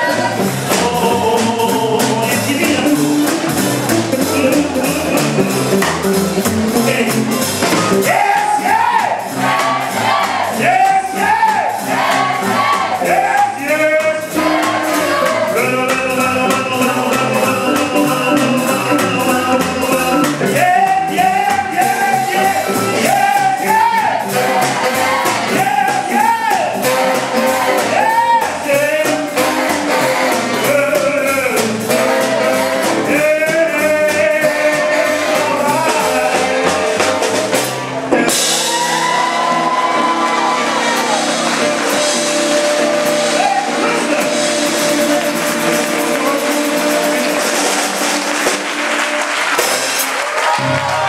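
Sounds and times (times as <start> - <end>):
blues band playing: 0.0 - 51.0
man shouting vocals: 6.7 - 9.3, 10.5 - 11.8, 15.5 - 24.4, 25.5 - 26.8, 27.9 - 29.3, 43.3 - 44.5.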